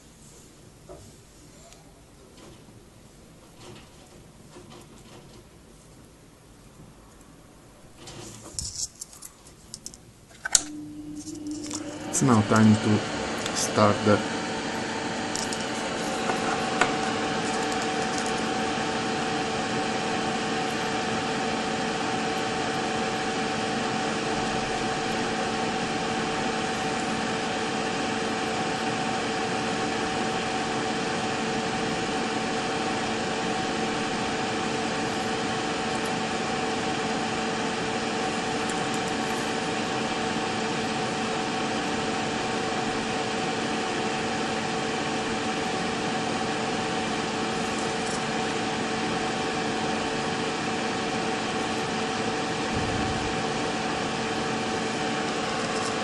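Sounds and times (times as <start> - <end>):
machine hum with hiss: 10.4 - 56.0.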